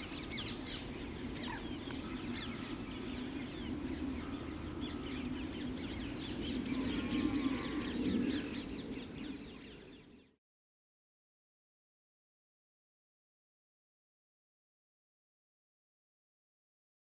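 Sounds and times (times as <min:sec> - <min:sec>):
birds chirping: 0:00.0 - 0:10.4.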